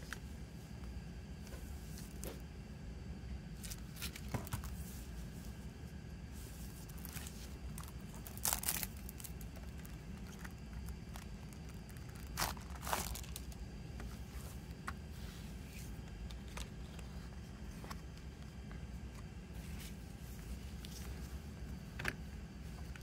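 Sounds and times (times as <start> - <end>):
shrink wrap tearing and crinkling: 6.8 - 13.6.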